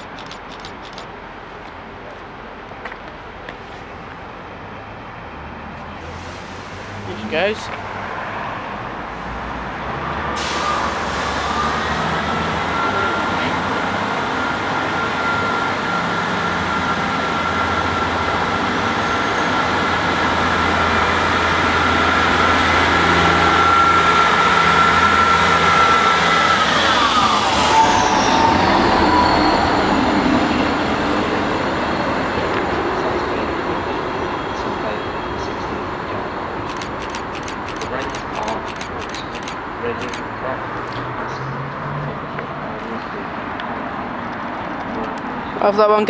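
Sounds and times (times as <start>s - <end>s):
diesel train engine whine: 8.6s - 40.6s.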